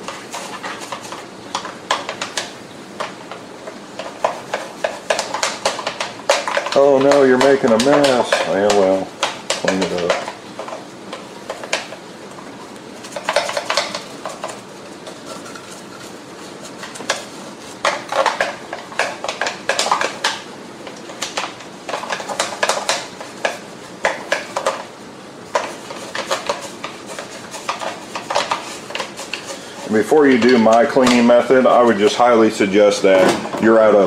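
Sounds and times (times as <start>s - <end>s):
toothbrush scrubbing plastic: 0.0s - 1.7s, 25.6s - 32.2s.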